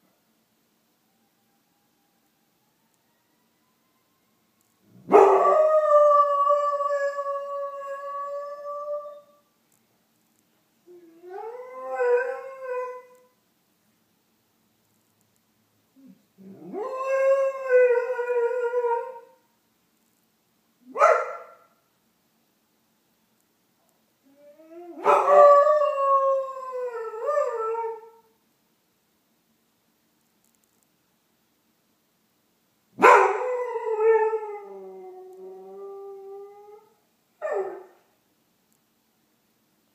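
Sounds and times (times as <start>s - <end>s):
distant emergency sirens: 1.0s - 9.2s
dog howling: 24.3s - 28.2s.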